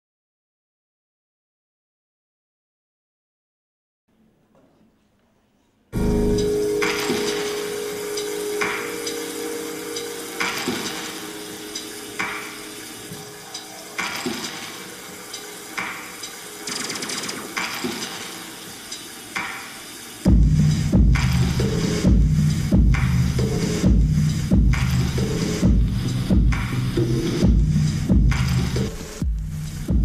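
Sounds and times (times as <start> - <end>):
noisy rattling swell: 6.0 - 29.2
low drone: 6.0 - 29.9.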